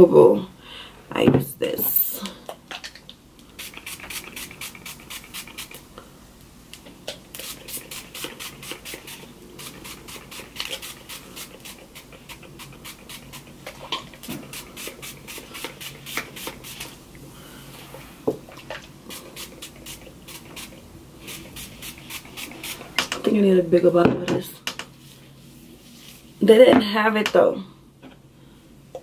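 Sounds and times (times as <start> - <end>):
spray bottle hissing sprays: 3.6 - 5.8, 7.4 - 13.6, 14.2 - 17.0, 19.1 - 23.2.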